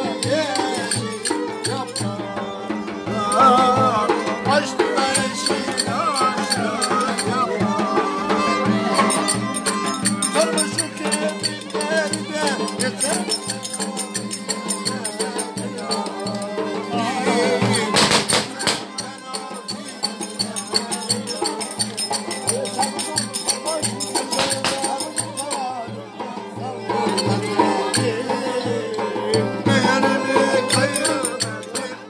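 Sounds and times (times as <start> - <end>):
bowed fiddle melody: 0.0 - 32.0
drum beating steady rhythm: 0.0 - 32.0.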